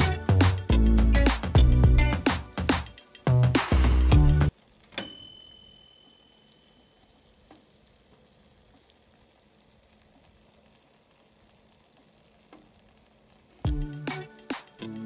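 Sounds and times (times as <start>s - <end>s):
faint steady hiss: 0.0s - 15.0s
soft ticks: 6.9s - 9.3s, 11.8s - 13.0s.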